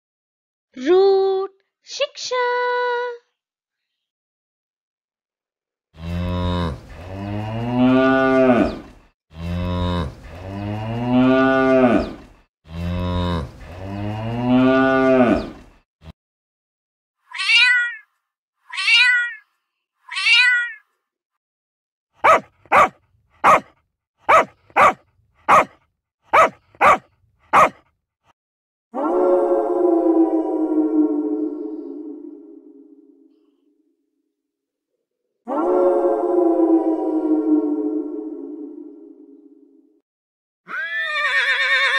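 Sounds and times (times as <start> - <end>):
cow mooing: 6.0 - 15.6
cat meowing: 17.3 - 18.0, 18.7 - 19.4, 20.1 - 20.8
dog barking: 22.2 - 27.8.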